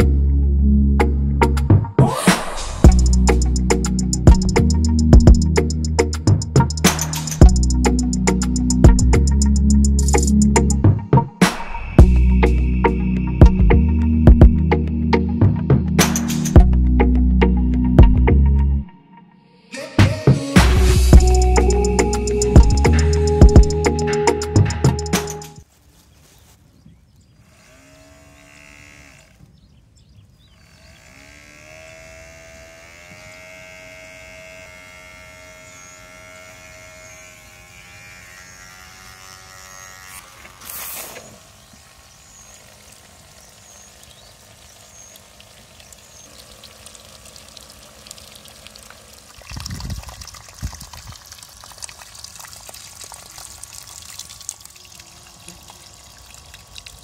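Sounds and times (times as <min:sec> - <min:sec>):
pump whine: 0:02.0 - 0:18.4, 0:19.8 - 0:25.6, 0:27.4 - 0:29.6, 0:30.5 - 0:57.0
water splashing onto mud: 0:42.6 - 0:57.0.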